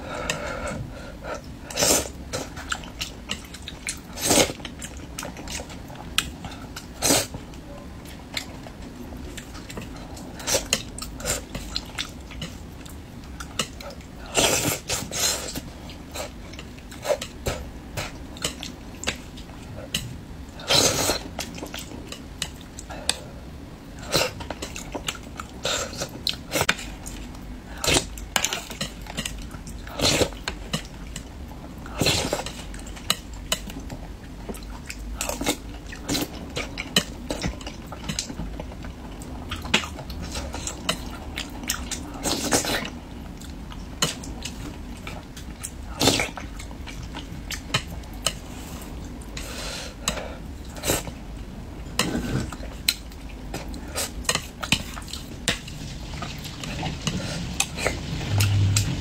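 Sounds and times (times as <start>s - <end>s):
person chewing: 1.4s - 7.4s.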